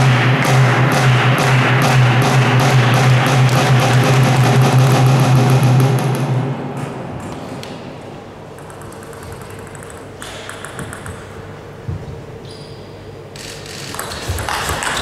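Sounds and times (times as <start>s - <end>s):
steady low hum: 0.0s - 15.0s
table tennis ball tapping: 8.5s - 11.5s, 13.9s - 15.0s.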